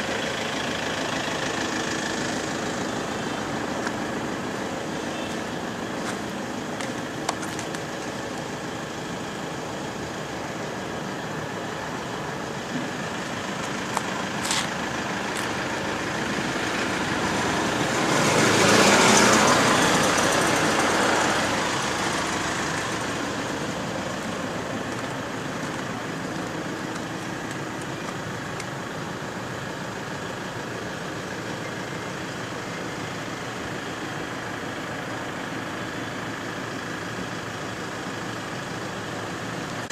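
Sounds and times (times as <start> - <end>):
road traffic noise: 0.0 - 39.9
vehicle passing close by: 16.0 - 24.6.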